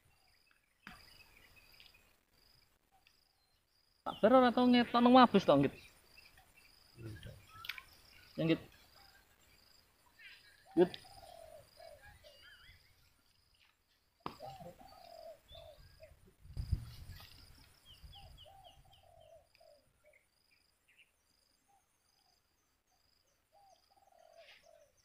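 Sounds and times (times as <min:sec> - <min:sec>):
birds calling: 0:00.0 - 0:22.4, 0:23.3 - 0:25.0
high bird chirps: 0:05.7 - 0:09.2, 0:10.1 - 0:13.1.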